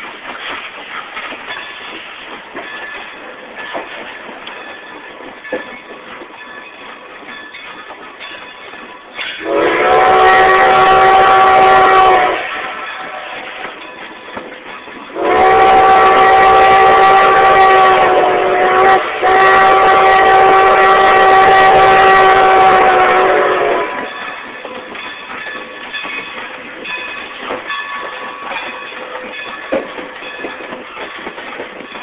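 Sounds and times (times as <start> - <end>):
wheels clicking over rail joints: 0.0 - 9.5, 12.4 - 15.2, 23.8 - 32.0
train running noise: 0.0 - 32.0
steam whistle blast: 9.4 - 13.4, 15.2 - 24.1.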